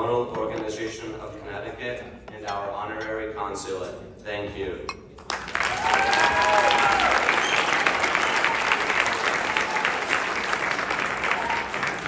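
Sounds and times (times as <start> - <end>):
audience applause: 5.3 - 12.0.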